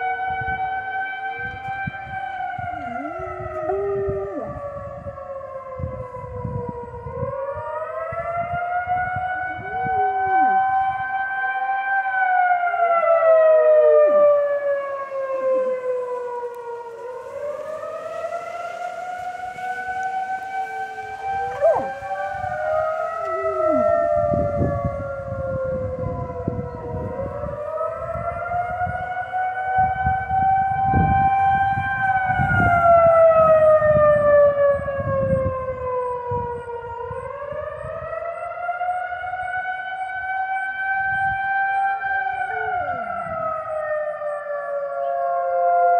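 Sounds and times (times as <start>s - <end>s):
warning siren wailing: 0.0s - 45.9s
dog howling: 1.3s - 5.3s, 9.5s - 10.9s, 21.0s - 24.3s, 42.4s - 43.2s.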